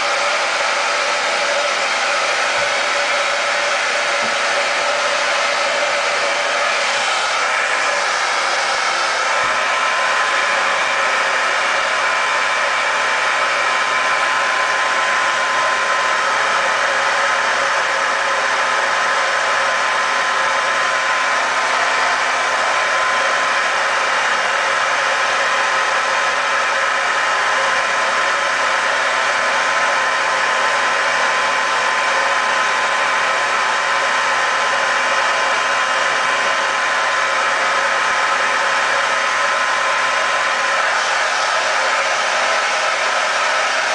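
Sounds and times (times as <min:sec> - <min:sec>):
hair dryer blowing with whine: 0:00.0 - 0:43.9.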